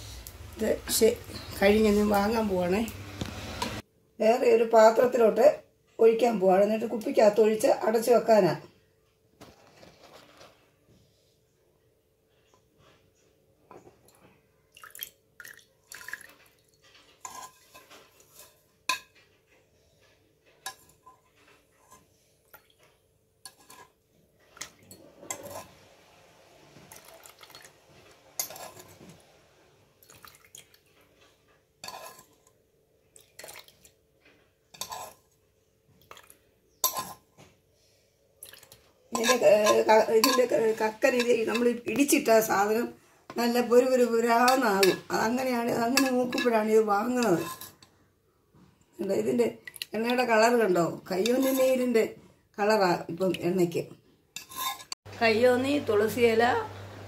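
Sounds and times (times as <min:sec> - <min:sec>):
oil trickling: 0:14.7 - 0:16.9, 0:26.8 - 0:27.9, 0:30.0 - 0:31.0.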